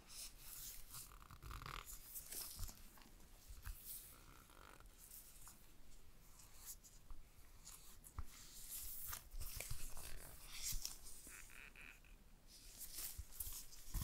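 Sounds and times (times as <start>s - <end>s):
stiff paper rustling: 12.7s - 14.0s.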